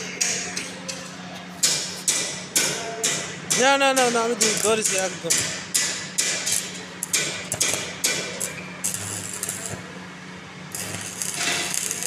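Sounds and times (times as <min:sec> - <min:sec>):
steady low hum: 0:00.0 - 0:12.0
welding arc crackling and sizzling: 0:03.5 - 0:10.0, 0:10.6 - 0:12.0.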